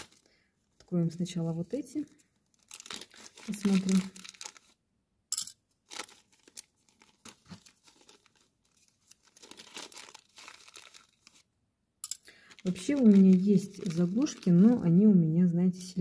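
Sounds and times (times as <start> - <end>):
plastic bag crinkling: 2.0 - 4.8, 5.8 - 11.5, 12.3 - 14.9.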